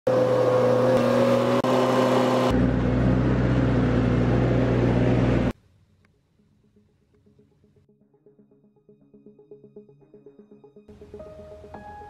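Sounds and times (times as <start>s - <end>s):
loader engine running: 0.1s - 5.5s.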